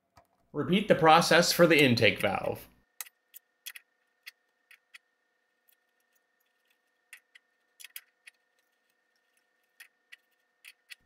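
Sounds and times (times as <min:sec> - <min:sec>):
small metallic clicks: 0:03.0 - 0:11.0.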